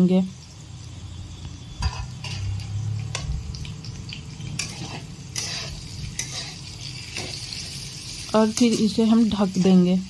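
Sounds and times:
oil sizzling: 0:00.0 - 0:10.0
metal spatula scraping a pan: 0:01.8 - 0:03.3, 0:04.4 - 0:10.0.

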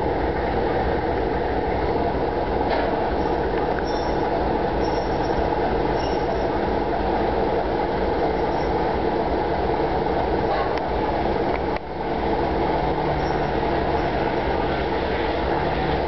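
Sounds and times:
train tender rumbling on rails: 0:00.0 - 0:16.0
high wheel squeals: 0:03.1 - 0:06.6, 0:08.2 - 0:08.8, 0:13.1 - 0:14.4.

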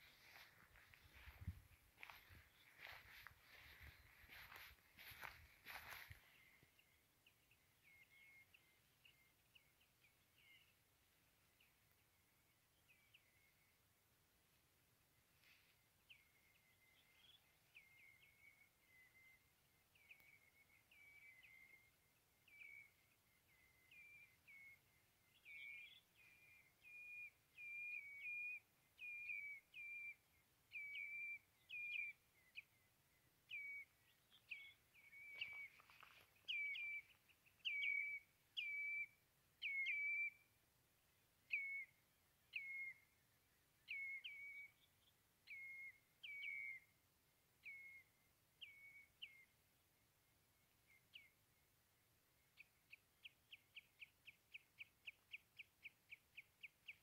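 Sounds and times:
bird whistled chirps: 0:34.6 - 0:40.4, 0:41.5 - 0:43.0.

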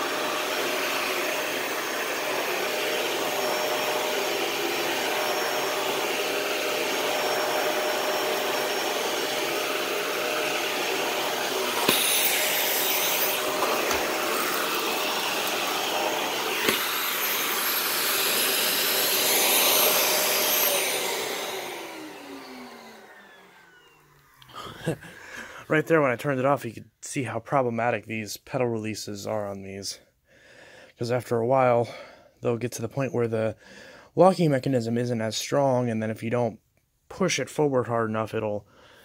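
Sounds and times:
vacuum cleaner motor hum: 0:00.0 - 0:25.9
motor winding down whine: 0:02.4 - 0:25.0.

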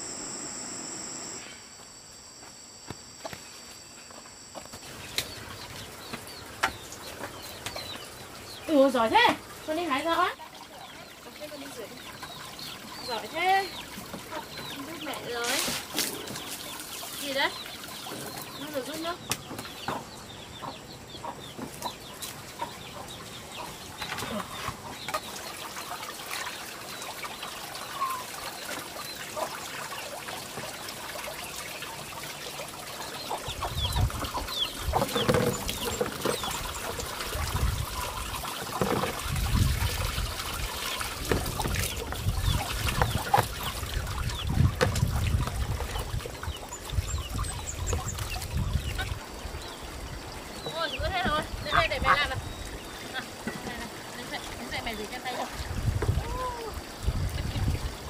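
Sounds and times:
water trickling and pouring: 0:04.8 - 0:19.2, 0:22.0 - 0:58.0
chickens clucking: 0:05.3 - 0:26.5, 0:32.9 - 0:49.4, 0:50.6 - 0:56.2
water splashing in basin: 0:24.0 - 0:49.3.

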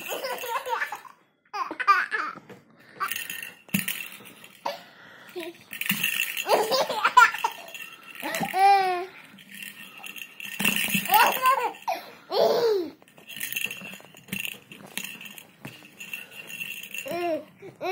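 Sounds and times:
toddler laughing and babbling: 0:06.4 - 0:09.2, 0:11.0 - 0:13.0, 0:17.0 - 0:17.9.

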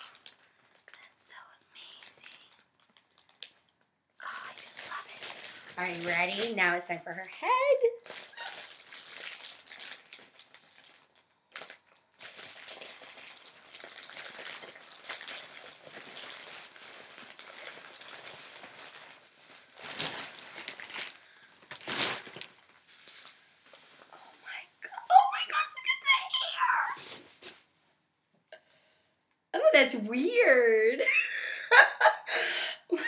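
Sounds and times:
plastic bag crinkling: 0:00.0 - 0:24.6.

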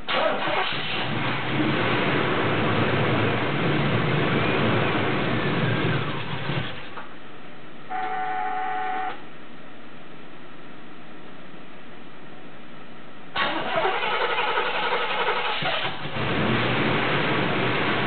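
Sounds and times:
electronic warning tone: 0:07.9 - 0:09.2.

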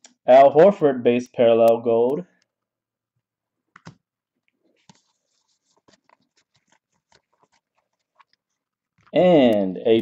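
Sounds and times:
cardboard cards flipped and slid: 0:04.6 - 0:09.1.

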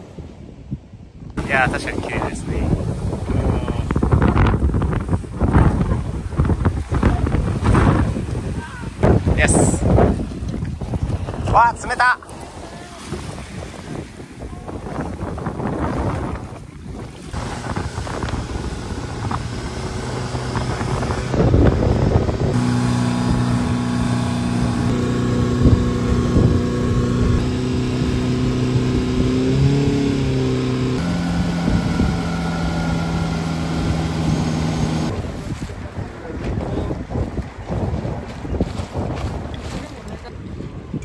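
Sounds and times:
water noise: 0:00.0 - 0:41.0
wind buffeting microphone: 0:00.0 - 0:41.0
motorboat engine: 0:16.0 - 0:35.5.

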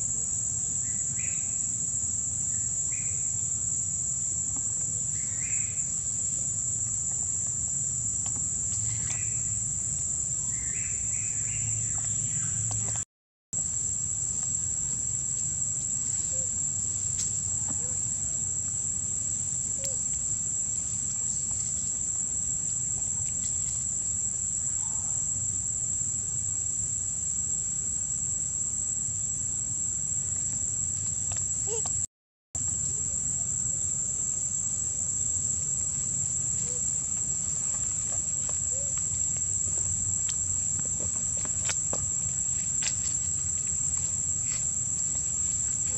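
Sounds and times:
insects droning: 0:00.0 - 0:45.9
faint chirping calls: 0:04.8 - 0:06.5, 0:10.3 - 0:13.0, 0:38.3 - 0:39.6.

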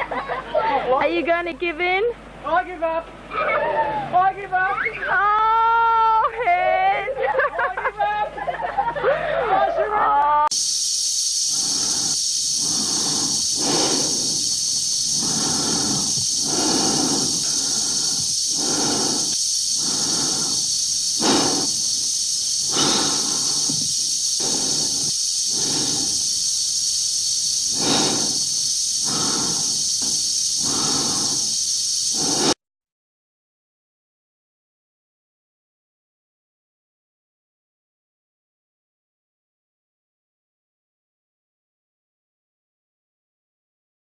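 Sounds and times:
steady air supply hiss: 0:10.5 - 0:32.6
heavy breathing in a helmet: 0:11.4 - 0:32.6.

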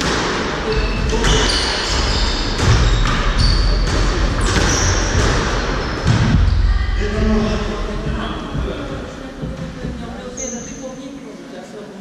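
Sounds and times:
sneakers squeaking on court floor: 0:00.0 - 0:06.6
squash ball hitting rackets and walls: 0:00.0 - 0:06.7.

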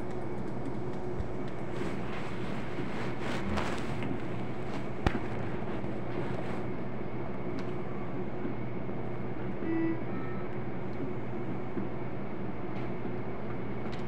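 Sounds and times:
low machine hum: 0:00.0 - 0:14.0
short tone: 0:09.6 - 0:10.4.

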